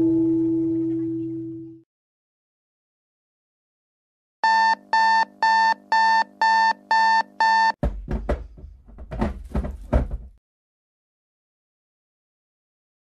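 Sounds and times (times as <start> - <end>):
alarm clock beeping: 4.4 - 7.8
thumps: 7.8 - 10.4.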